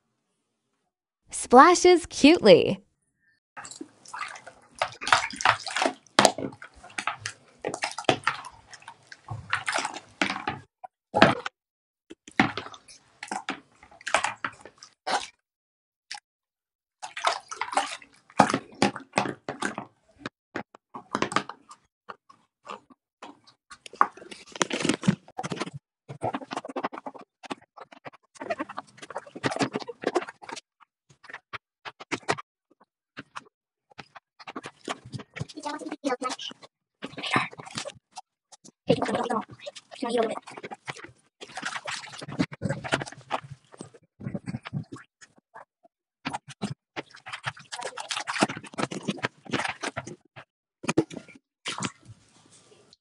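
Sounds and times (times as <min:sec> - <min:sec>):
hand splashing in soapy water: 0:03.6 - 0:10.4, 0:17.0 - 0:18.9, 0:39.8 - 0:43.4.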